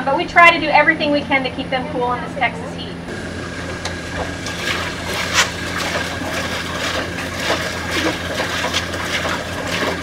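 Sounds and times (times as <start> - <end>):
steady low hum: 0.0 - 10.0
water splashing in tub: 3.1 - 10.0.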